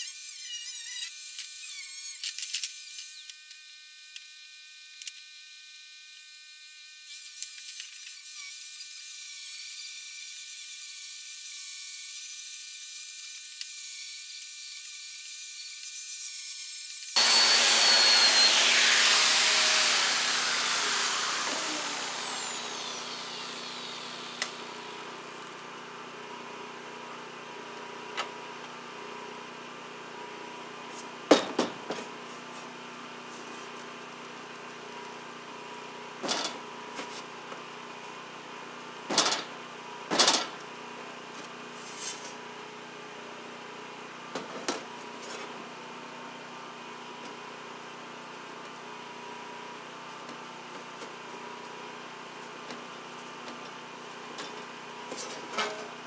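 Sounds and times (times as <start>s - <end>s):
angle grinder grinding steel: 0.0s - 4.3s, 5.0s - 25.1s.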